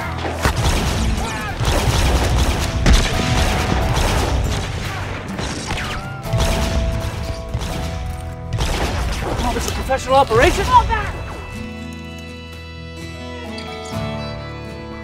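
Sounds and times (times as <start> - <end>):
gunshots: 0.0 - 11.6.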